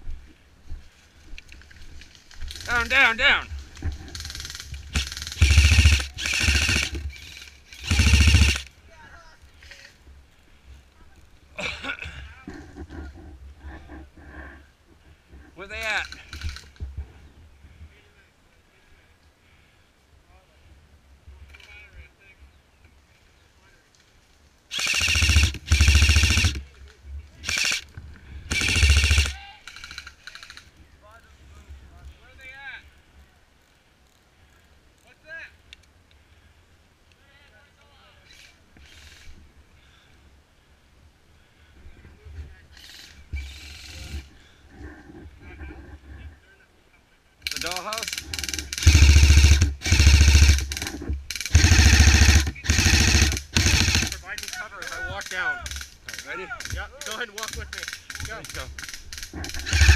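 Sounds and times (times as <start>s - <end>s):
gun motor hum: 3.8s - 8.7s, 24.7s - 26.7s, 27.4s - 30.6s, 42.8s - 44.3s, 47.4s - 54.5s, 57.8s - 59.9s
airsoft rifle firing full auto: 4.1s - 8.7s, 24.7s - 26.7s, 27.4s - 27.9s, 28.5s - 30.6s, 47.4s - 54.6s, 57.8s - 59.9s.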